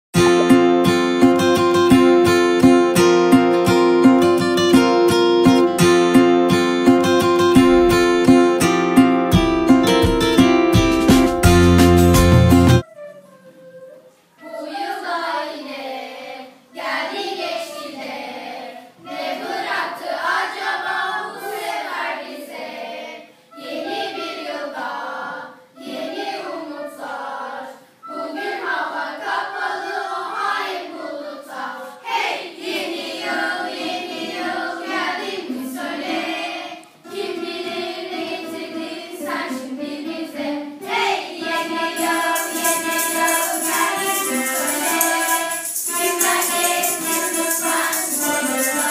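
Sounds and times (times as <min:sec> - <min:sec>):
acoustic guitars: 0:00.2 - 0:13.2
children's choir singing: 0:07.2 - 0:10.6, 0:12.8 - 0:48.9
high jingling percussion: 0:07.5 - 0:08.4, 0:41.5 - 0:48.9.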